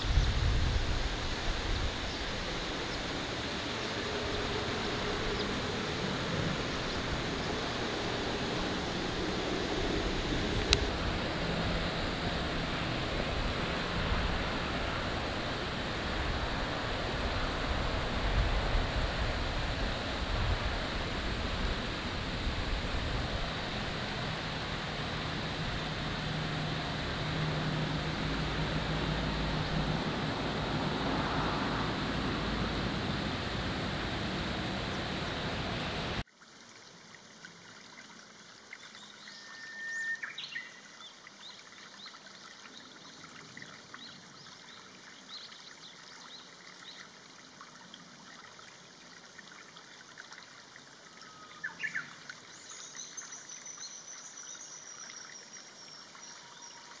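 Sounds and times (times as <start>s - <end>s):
steady rushing noise: 0.0s - 36.2s.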